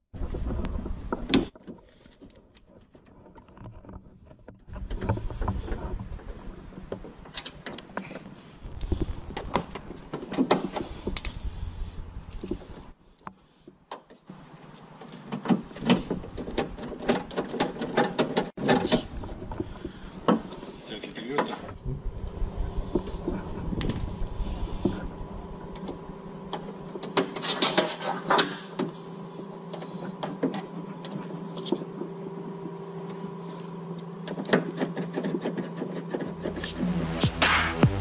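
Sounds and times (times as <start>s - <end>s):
low rumbles: 8.6s - 10.1s, 10.8s - 12.9s, 21.7s - 26.2s.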